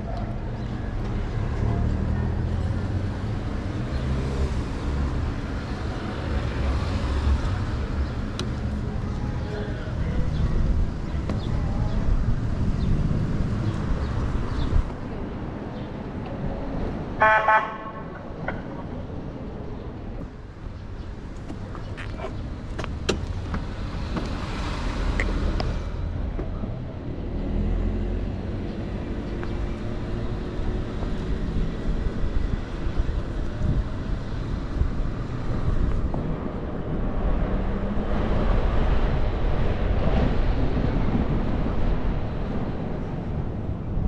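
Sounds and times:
passing traffic: 0.0s - 44.0s
road noise: 0.0s - 44.0s
wind buffeting microphone: 28.4s - 44.0s.

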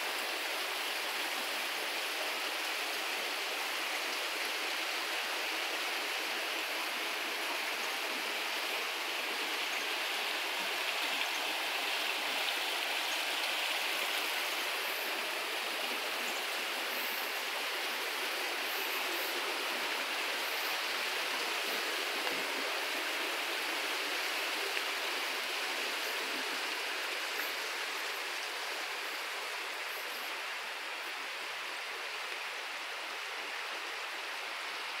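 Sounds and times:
stream rushing: 0.0s - 35.0s.

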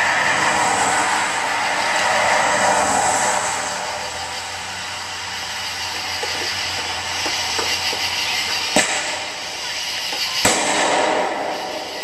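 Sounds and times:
steady hiss: 0.1s - 12.0s
fireworks bangs: 5.6s - 12.0s.

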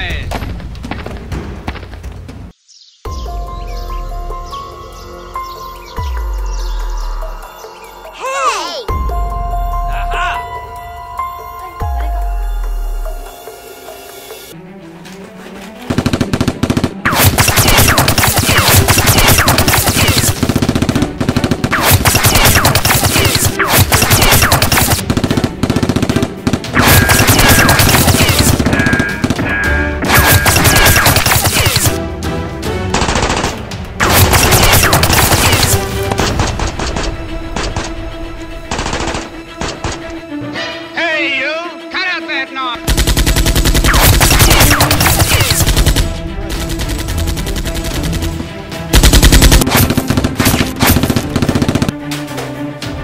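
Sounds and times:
action background music: 0.0s - 53.0s
automatic gunfire bursts: 15.9s - 29.4s, 30.1s - 32.0s, 33.0s - 36.6s, 42.8s - 52.0s.

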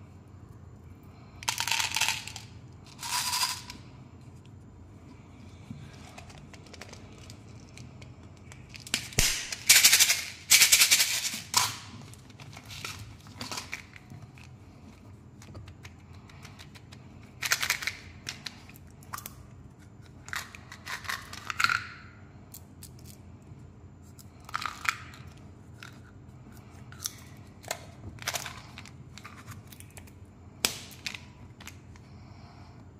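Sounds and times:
plastic packaging crinkling and clicking: 6.1s - 9.6s.

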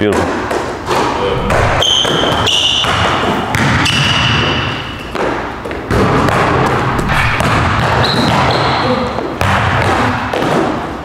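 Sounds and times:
sneakers squeaking on floor: 0.8s - 10.9s
basketball thudding: 1.0s - 8.8s.

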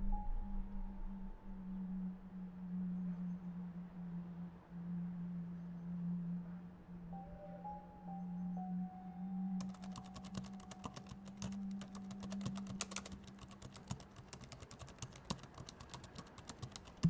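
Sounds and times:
low steady hum: 0.0s - 17.0s
typing on a keyboard: 9.6s - 17.0s.

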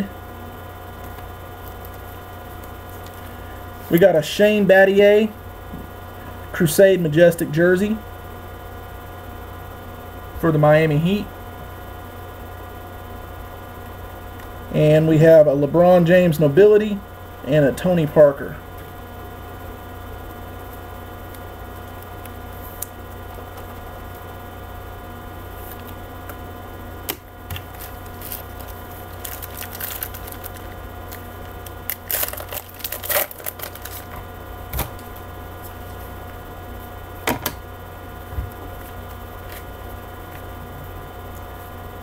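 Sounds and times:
steady electrical hum: 0.0s - 42.0s
cards crinkling and tapping: 1.0s - 2.0s, 27.1s - 35.2s
card pack tearing open: 27.5s - 35.0s.

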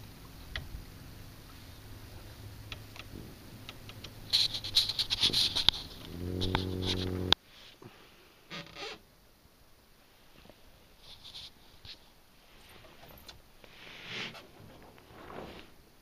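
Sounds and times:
low buzz: 0.0s - 7.4s
low steady hum: 0.0s - 16.0s
water lapping against boat hull: 0.2s - 7.4s.

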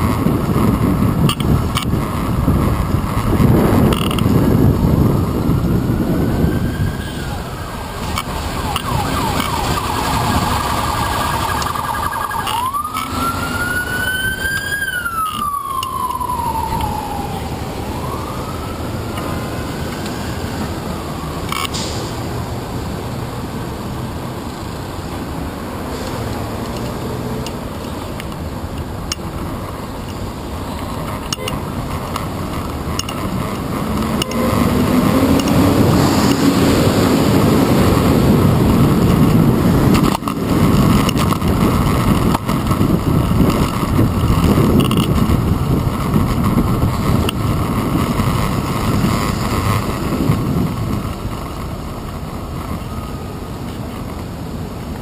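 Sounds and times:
street traffic noise: 0.0s - 55.0s
emergency vehicle siren wailing: 4.0s - 22.9s, 30.3s - 53.7s.

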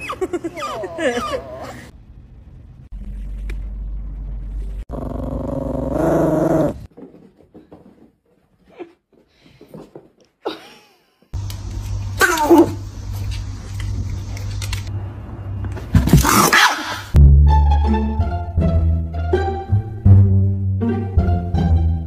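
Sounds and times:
small dog growling: 4.9s - 6.9s.

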